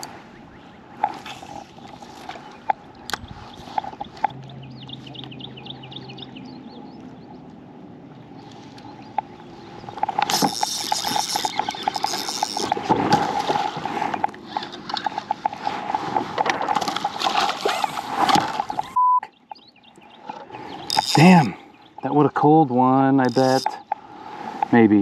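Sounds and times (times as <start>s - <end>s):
water splashing: 6.8s - 19.0s
fishing reel clicking and whirring: 10.2s - 12.8s, 20.9s - 21.5s, 23.2s - 23.8s
short steady beep: 19.0s - 19.3s.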